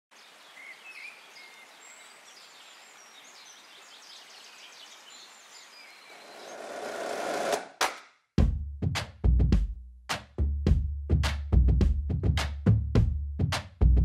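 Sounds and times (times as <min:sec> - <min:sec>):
birds chirping and whistling: 0:04.1 - 0:07.0.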